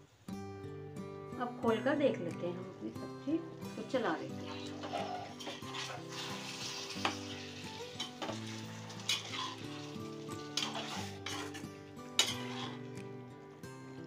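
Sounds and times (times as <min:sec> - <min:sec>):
soft background music: 0:00.1 - 0:14.0
vegetables sizzling in oil: 0:02.6 - 0:13.0
metal spoon scraping pan: 0:04.2 - 0:13.0.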